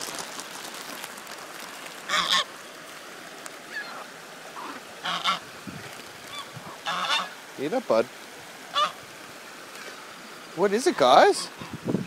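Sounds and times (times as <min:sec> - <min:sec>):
goose honking: 0:02.1 - 0:02.5, 0:04.6 - 0:05.4, 0:06.3 - 0:07.4, 0:08.7 - 0:09.0.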